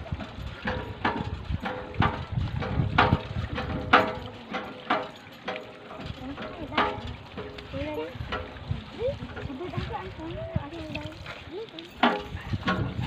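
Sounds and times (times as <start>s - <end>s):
hand pump handle clanking: 0.0s - 13.0s.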